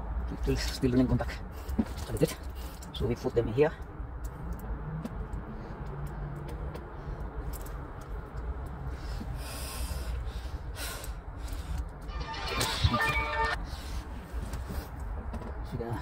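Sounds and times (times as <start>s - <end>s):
short breaths: 8.9s - 11.9s.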